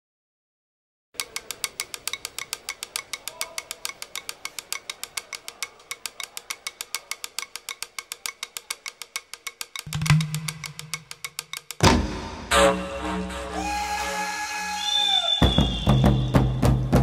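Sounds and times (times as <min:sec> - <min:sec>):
fast percussion clicks: 0:01.2 - 0:11.9.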